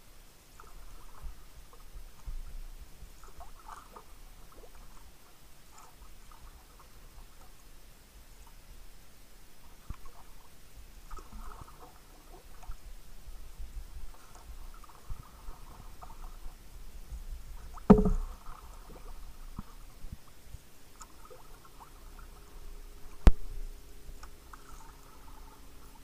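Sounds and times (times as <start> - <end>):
trickling water: 0.4 - 7.7, 8.3 - 26.0
paddle splashes: 0.5 - 7.6, 9.6 - 12.9, 13.8 - 23.5, 24.2 - 26.0
sharp hollow knocks: 17.9 - 18.4.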